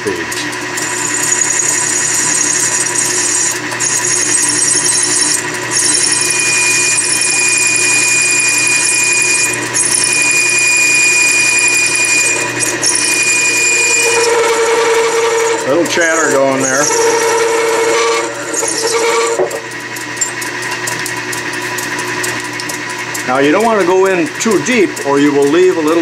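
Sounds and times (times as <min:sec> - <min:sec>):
lathe turning metal rod: 0:00.0 - 0:26.0
high-pitched tool chatter squeal: 0:00.8 - 0:20.4.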